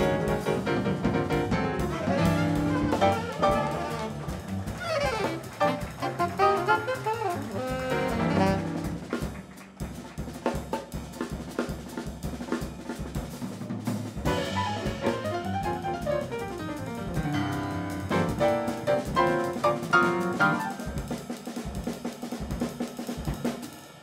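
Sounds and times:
drum kit playing: 0.0s - 24.0s
alto saxophone phrase: 1.5s - 9.4s.

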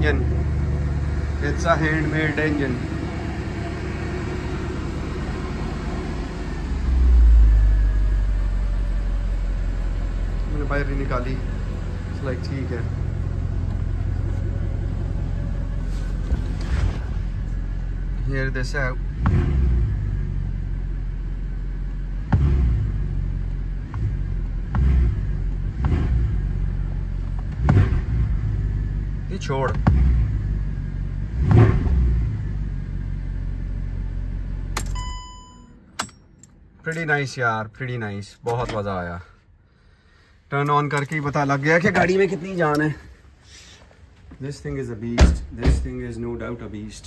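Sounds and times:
car engine idling: 0.0s - 31.5s
engine throttle blips: 0.0s - 36.7s.

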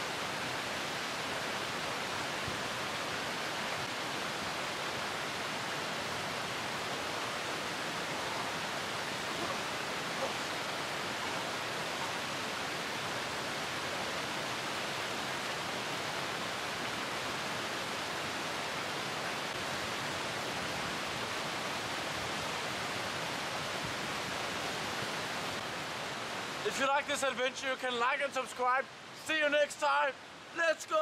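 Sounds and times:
stream rushing over stones: 0.0s - 31.0s.

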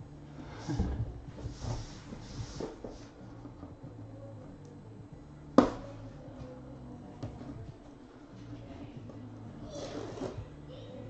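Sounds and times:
hands rubbing on case: 1.4s - 3.6s.

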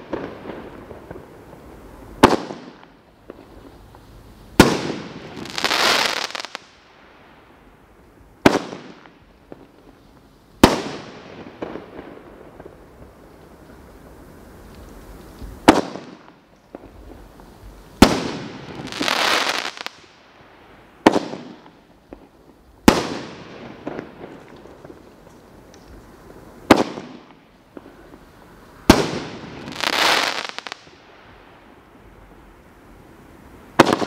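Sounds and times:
firework bangs: 0.0s - 6.7s, 8.4s - 9.9s, 10.6s - 14.1s, 15.3s - 20.1s, 20.9s - 25.3s, 26.2s - 31.1s, 33.7s - 34.0s
firework crackling: 0.0s - 34.0s.

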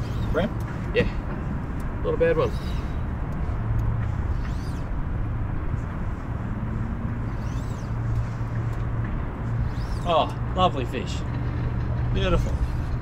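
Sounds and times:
low engine hum: 0.0s - 13.0s
high rising and falling chirps: 2.4s - 3.1s, 4.1s - 5.1s, 7.1s - 8.4s, 9.5s - 10.4s.

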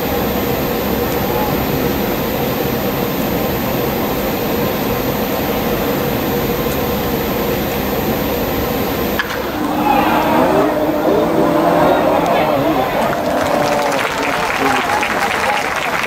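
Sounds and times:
faint steady hum: 0.0s - 16.0s
stadium crowd roar: 9.2s - 16.0s.

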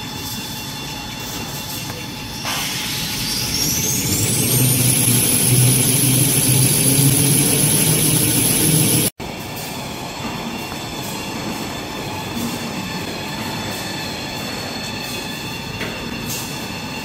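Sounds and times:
production line machinery whine: 0.0s - 17.0s
low machine hum: 2.9s - 9.1s.

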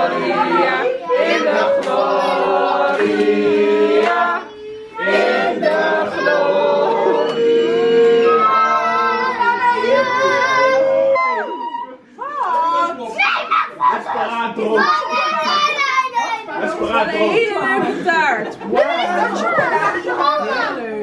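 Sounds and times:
group of people singing: 0.0s - 12.0s.

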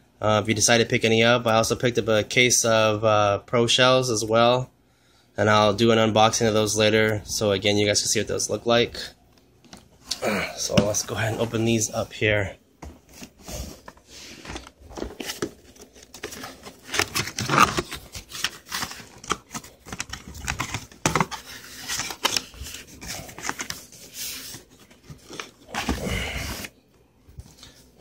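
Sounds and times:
packaging rustling: 13.0s - 26.8s
cardboard box being opened: 13.2s - 23.8s.

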